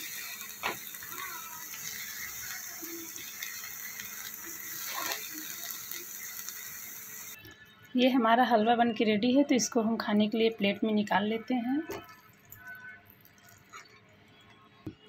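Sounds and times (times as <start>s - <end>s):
steady hiss: 0.0s - 7.4s
spatula scraping a pan: 4.8s - 5.3s.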